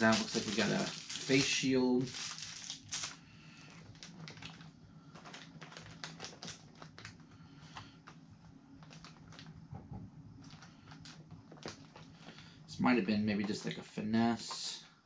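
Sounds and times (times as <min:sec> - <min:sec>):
plastic packages clicking: 0:00.0 - 0:08.2, 0:08.8 - 0:09.6, 0:10.4 - 0:12.5.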